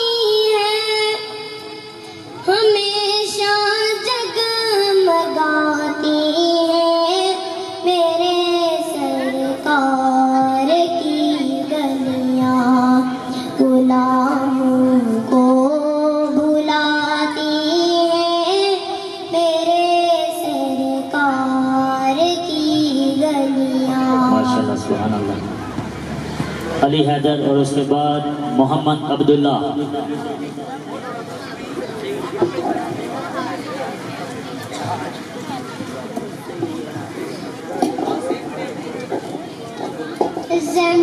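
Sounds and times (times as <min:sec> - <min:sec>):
boy singing solo: 0:00.0 - 0:25.0, 0:40.5 - 0:41.0.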